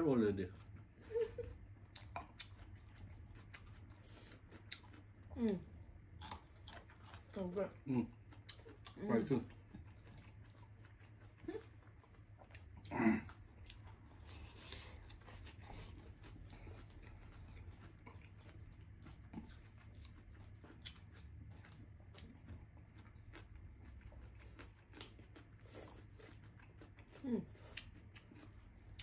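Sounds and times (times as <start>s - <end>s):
chewing and soft crunching: 0.0s - 29.0s
low steady hum: 0.0s - 29.0s.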